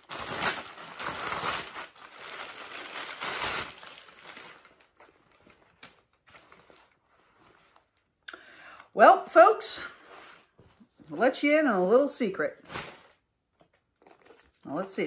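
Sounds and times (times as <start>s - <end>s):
packaging rustling and crinkling: 0.0s - 8.1s, 12.6s - 14.7s.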